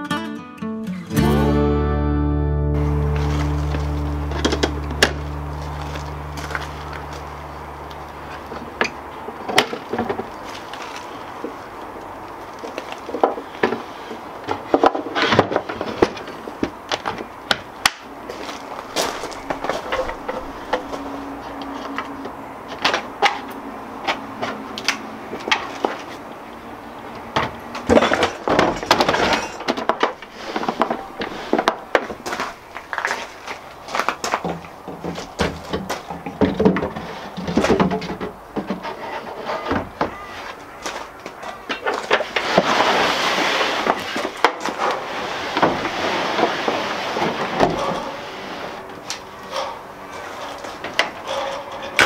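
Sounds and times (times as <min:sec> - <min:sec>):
wooden box scraping on metal floor: 0:36.6 - 0:40.5, 0:42.1 - 0:48.8.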